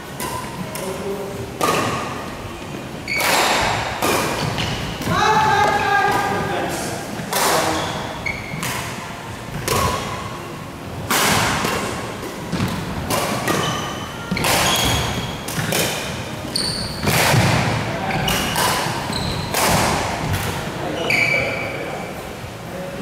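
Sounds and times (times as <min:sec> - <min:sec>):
rackets hitting shuttlecock: 0:01.6 - 0:02.2, 0:03.1 - 0:10.3, 0:11.0 - 0:20.6
sneakers squeaking on court floor: 0:03.0 - 0:03.6, 0:04.3 - 0:06.3, 0:07.6 - 0:10.2, 0:12.5 - 0:21.8.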